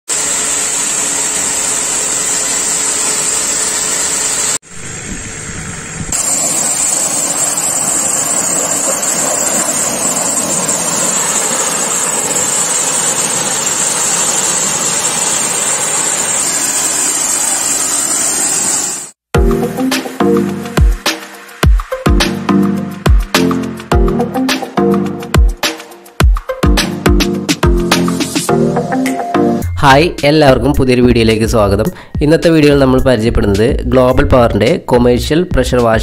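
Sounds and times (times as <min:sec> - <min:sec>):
pressure washer water jet hiss: 0:00.1 - 0:19.2
electric motor and pump hum: 0:00.1 - 0:21.0.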